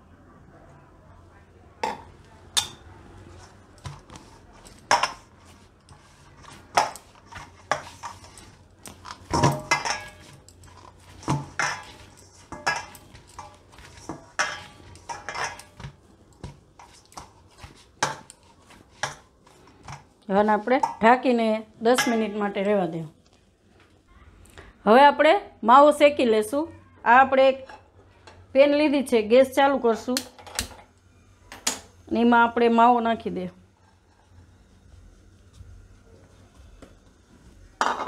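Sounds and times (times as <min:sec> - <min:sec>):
hands kneading dough: 0:03.2 - 0:21.2, 0:33.7 - 0:37.8.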